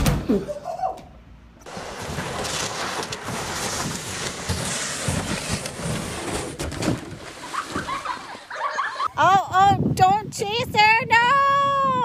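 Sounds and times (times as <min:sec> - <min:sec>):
kayak scraping down snow: 0:01.6 - 0:09.1
kayak bumps: 0:02.2 - 0:08.7.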